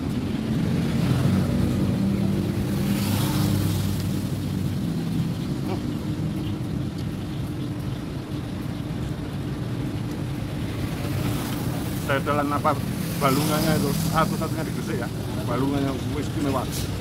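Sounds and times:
vehicle passing by: 0:00.0 - 0:06.8, 0:10.4 - 0:17.0
vehicle engines humming: 0:00.0 - 0:17.0.

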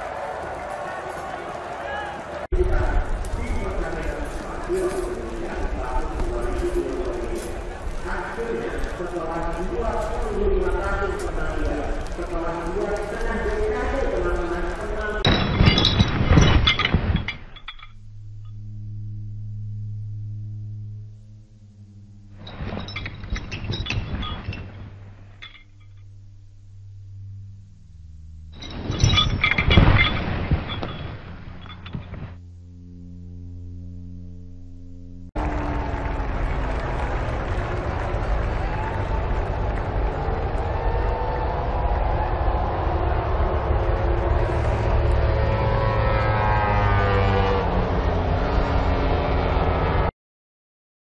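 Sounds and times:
low humming drone: 0:02.5 - 0:50.1
glassy clinks and chimes: 0:15.3 - 0:18.0, 0:22.4 - 0:24.8, 0:25.4 - 0:26.0, 0:28.6 - 0:32.1
racing motorcycle engine: 0:32.7 - 0:50.1.

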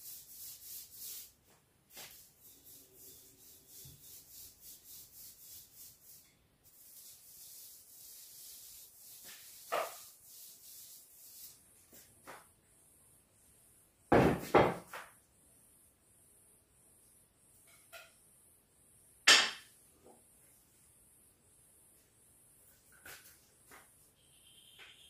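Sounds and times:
paintbrush rubbing strokes: 0:00.0 - 0:12.5.

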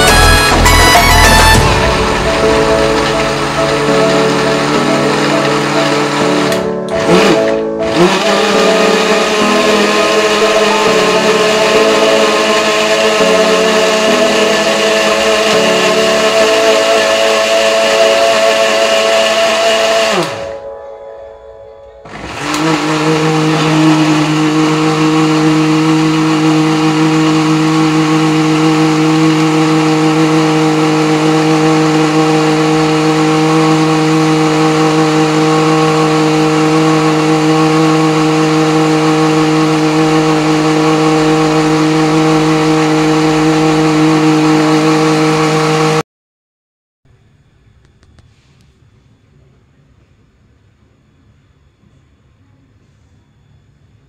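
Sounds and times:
blender running: 0:00.0 - 0:20.6, 0:22.1 - 0:46.0.

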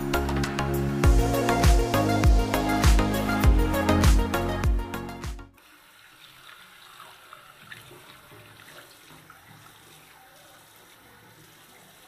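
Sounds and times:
tap water running into basin: 0:05.6 - 0:12.0.

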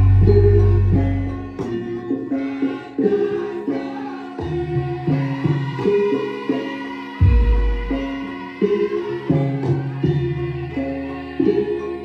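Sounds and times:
metal-keyed instruments melody: 0:00.0 - 0:05.6.

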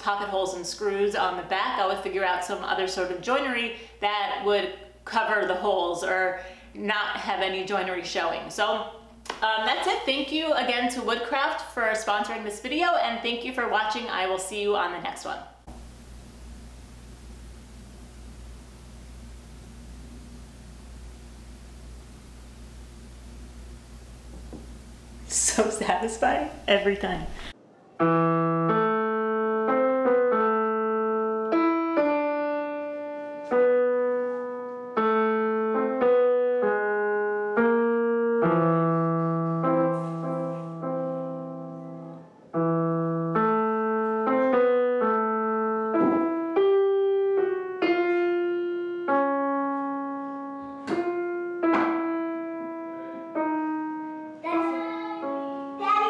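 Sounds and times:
digital piano tune: 0:28.0 - 0:56.0.

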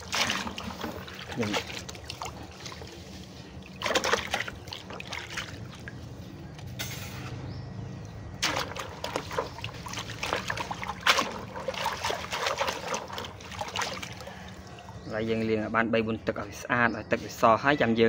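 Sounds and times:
hands splashing water in bucket: 0:00.0 - 0:06.1, 0:08.4 - 0:14.8.

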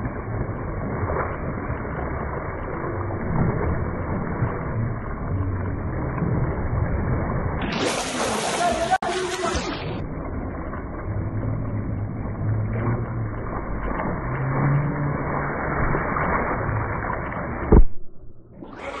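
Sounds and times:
low hum: 0:00.0 - 0:19.0
muffled splashing water: 0:00.0 - 0:19.0
sharp thump: 0:17.7 - 0:18.4.

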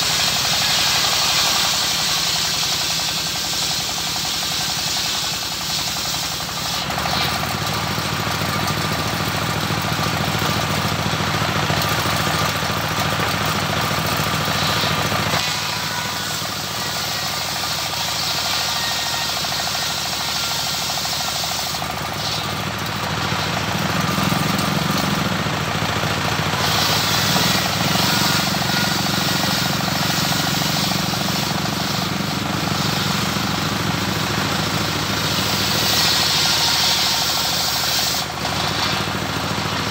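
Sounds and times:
saw blade ripping wood: 0:00.0 - 0:39.9
stationary engine running: 0:00.0 - 0:39.9.

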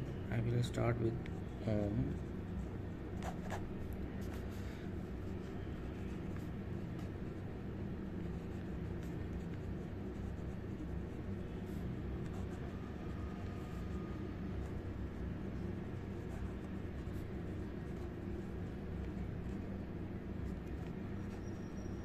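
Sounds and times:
steady low hum: 0:00.0 - 0:22.0
pen nib scratching on paper: 0:05.1 - 0:14.0.

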